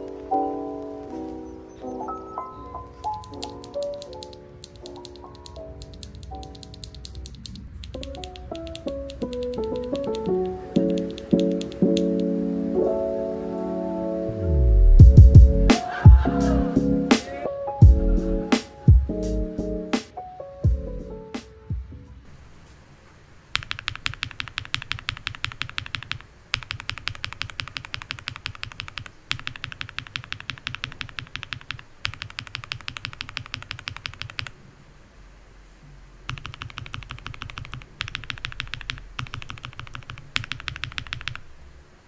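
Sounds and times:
mechanical keyboard keys clacking: 3.0 - 12.3, 23.6 - 34.6, 36.3 - 41.4.

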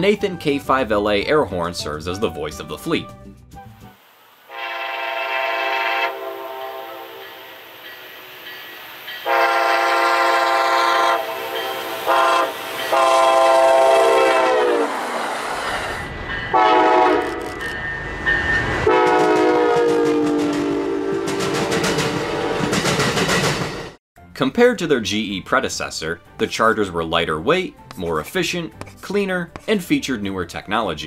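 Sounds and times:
train air horn: 4.5 - 7.6, 9.2 - 15.0, 16.5 - 17.4, 18.8 - 22.7
train rumble and rail clatter: 6.2 - 24.0.

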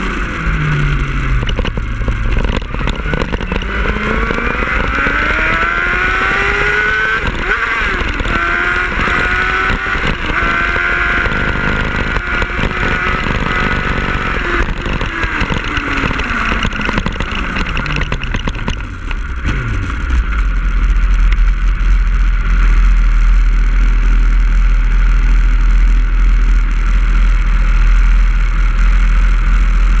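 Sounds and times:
wind noise on microphone: 0.0 - 22.8
motorcycle engine decelerating: 0.0 - 30.0
motorcycle engine idling: 0.0 - 30.0.

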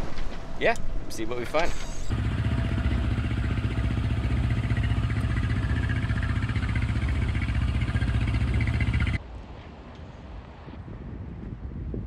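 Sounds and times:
boat engine pulsing drone: 2.1 - 9.2.

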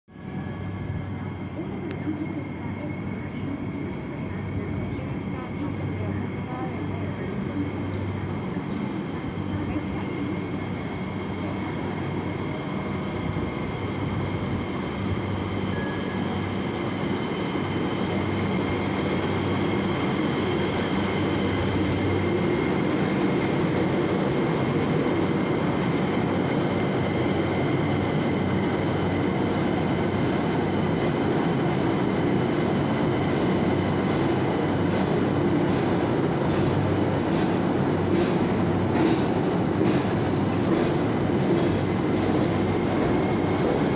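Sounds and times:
train wheels rumbling on rails: 0.2 - 43.9
rail joint clicks: 33.8 - 43.6.

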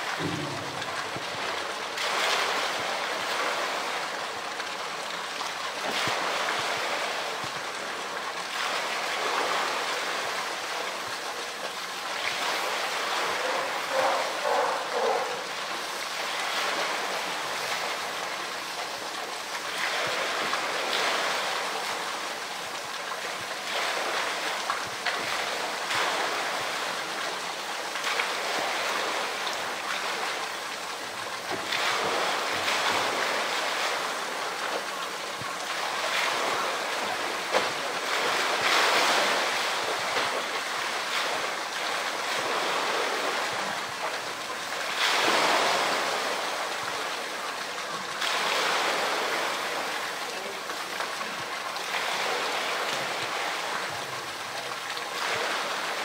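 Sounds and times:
pool water sloshing and splashing: 0.0 - 56.0.

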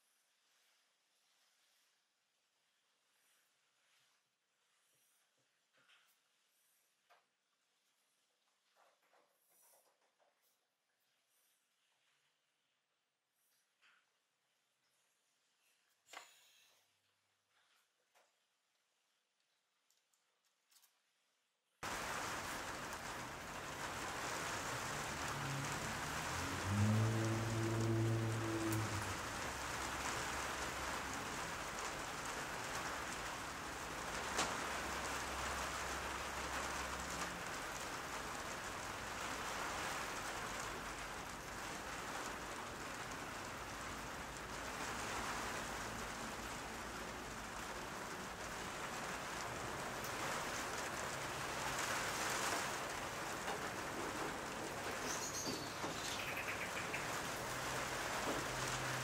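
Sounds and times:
rain-like hiss: 0.0 - 8.4, 21.8 - 59.0.

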